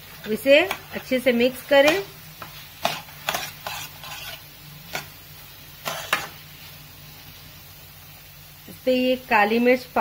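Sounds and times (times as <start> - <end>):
faint sizzle of frying: 0.0 - 10.0
spatula scraping a pan: 0.2 - 5.2, 5.8 - 6.7.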